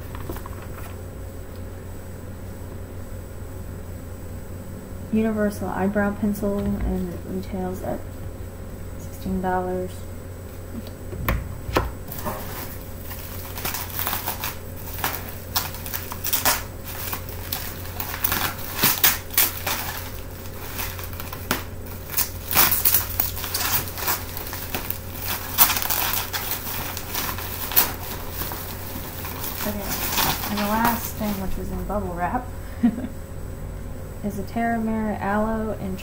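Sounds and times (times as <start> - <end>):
low knocks: 11.1 - 12.1
bubble wrap crinkling: 11.7 - 31.7.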